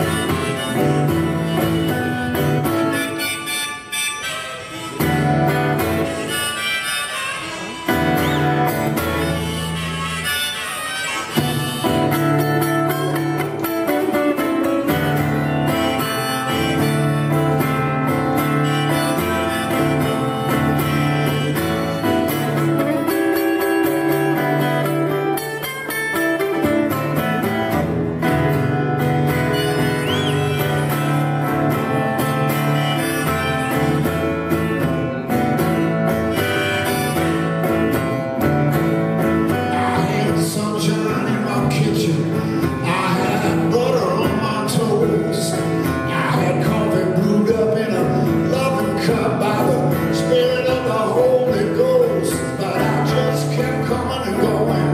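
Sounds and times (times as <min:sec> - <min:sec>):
harmonica playing held notes: 0:00.0 - 0:40.2
acoustic guitar strumming: 0:00.0 - 0:54.9.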